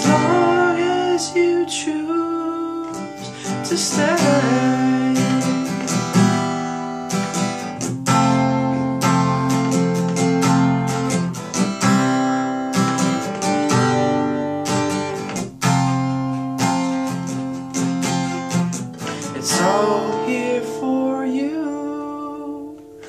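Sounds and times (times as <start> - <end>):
acoustic guitar strumming: 0.0 - 23.0.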